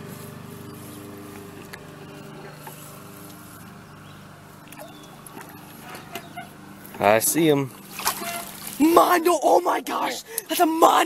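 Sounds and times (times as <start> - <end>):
small motor humming: 0.0 - 8.8.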